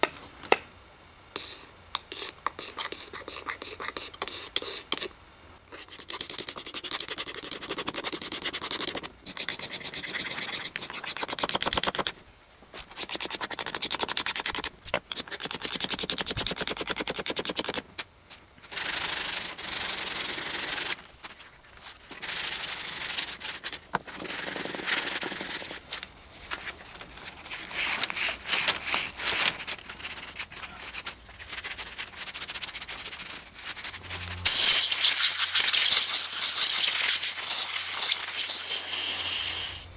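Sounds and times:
sandpaper rubbing on wood: 0:05.7 - 0:12.1, 0:12.8 - 0:17.8.

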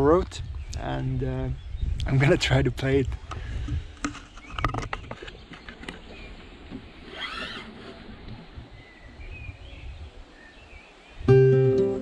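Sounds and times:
wind rumble on microphone: 0:00.0 - 0:11.7
microphone handling clicks: 0:03.0 - 0:08.4.

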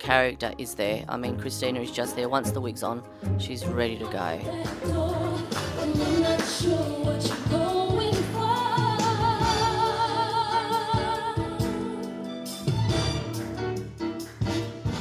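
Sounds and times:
person singing: 0:03.4 - 0:12.3
backing band: 0:04.5 - 0:10.4, 0:11.0 - 0:15.0.

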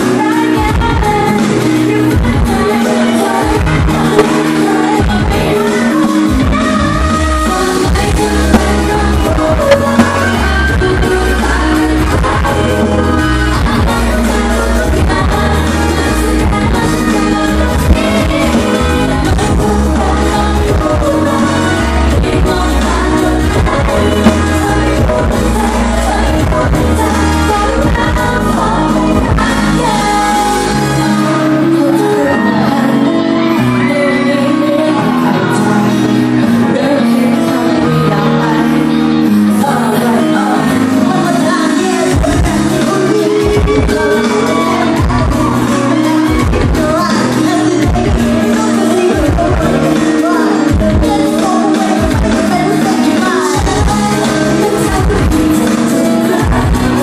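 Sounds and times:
pop song over sound system: 0:00.0 - 0:57.0
women singing: 0:00.0 - 0:57.0
heavy bass: 0:03.4 - 0:05.7, 0:06.3 - 0:31.3
drum beat: 0:24.2 - 0:25.2.

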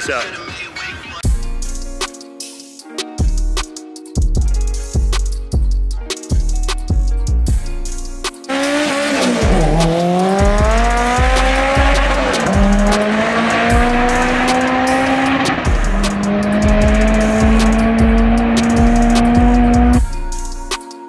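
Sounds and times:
music with drum beat: 0:01.2 - 0:21.0
car engine accelerating: 0:08.5 - 0:20.0.

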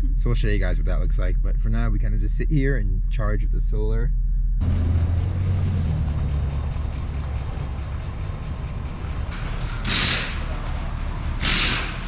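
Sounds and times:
truck engine idling: 0:04.6 - 0:12.0.

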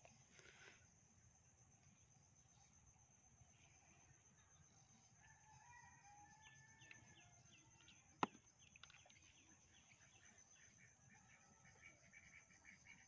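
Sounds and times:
distant rooster crowing: 0:05.2 - 0:07.6.

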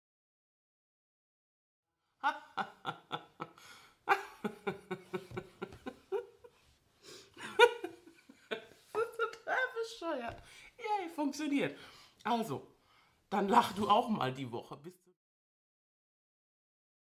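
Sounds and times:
woman laughing heartily: 0:02.2 - 0:09.3.

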